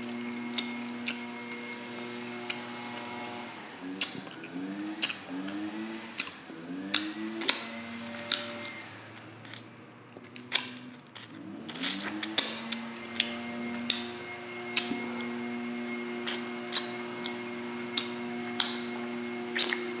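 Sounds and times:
wet lip smacks and chewing: 0.1 - 3.4, 4.0 - 5.6, 6.2 - 14.1, 14.7 - 19.9
wet sucking noise: 10.4 - 20.0.

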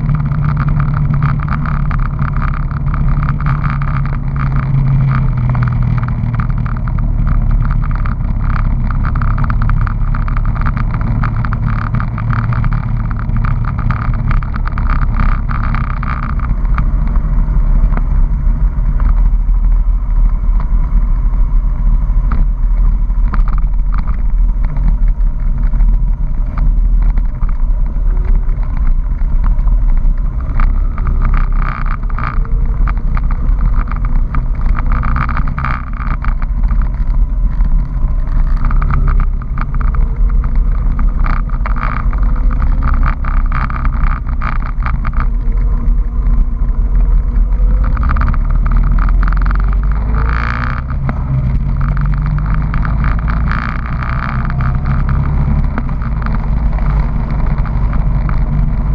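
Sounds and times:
motorcycle engine running: 0.0 - 58.9.

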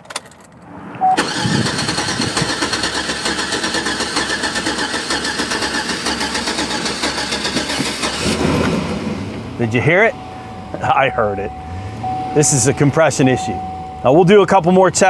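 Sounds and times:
starter motor cranking engine: 1.2 - 8.7.

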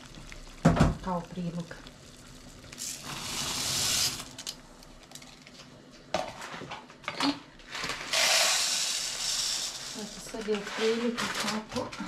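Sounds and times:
rice pouring into pot: 0.0 - 5.2.

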